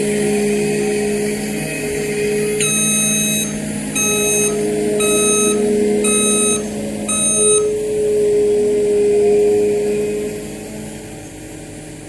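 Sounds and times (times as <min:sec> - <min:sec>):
loader engine running: 0:01.0 - 0:08.4
reversing alarm beeping: 0:02.6 - 0:08.0.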